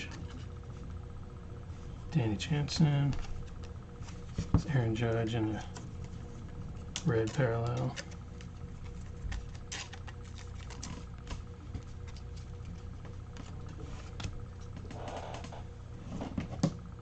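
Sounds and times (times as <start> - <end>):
faint steady hum: 0.0 - 17.0
cards clicking and rustling: 3.1 - 15.5.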